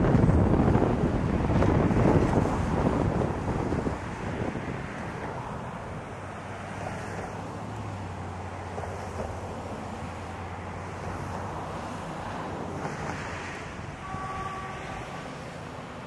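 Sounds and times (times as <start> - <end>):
diesel locomotive engine drone: 0.0 - 16.0
wind rumbling on microphone: 0.0 - 16.0.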